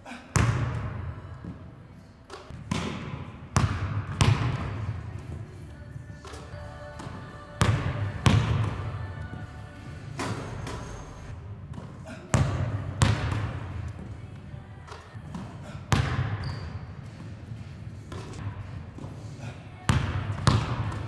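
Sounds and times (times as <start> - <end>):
basketball bouncing on hardwood floor: 0.4 - 0.9, 2.5 - 4.8, 11.7 - 13.7, 15.3 - 16.8, 19.9 - 21.0.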